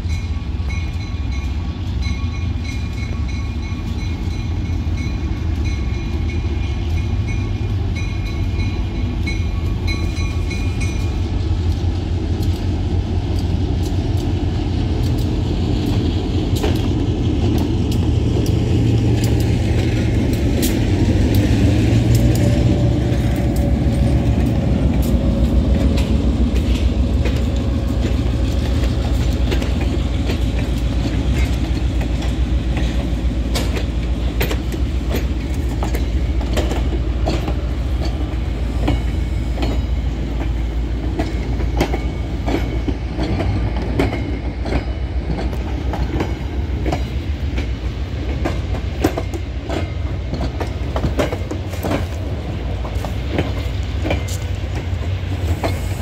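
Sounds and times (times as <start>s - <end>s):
diesel locomotive engine drone: 0.0s - 56.0s
train wheels clicking over rail joints: 0.0s - 56.0s.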